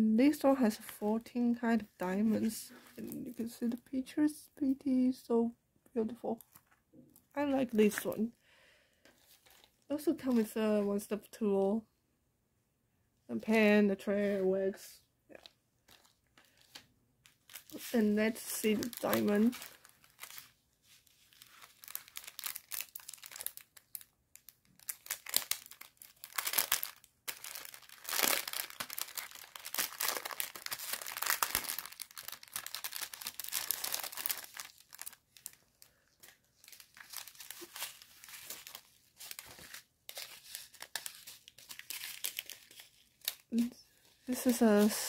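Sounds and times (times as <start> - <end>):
plastic packaging crinkling: 6.4 - 6.8, 9.1 - 10.6, 15.3 - 45.0.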